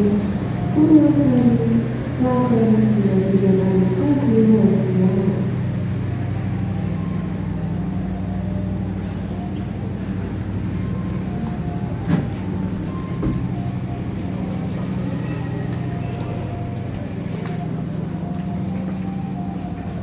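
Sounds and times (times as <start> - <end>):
train carriage rumble and hum: 0.0 - 20.0.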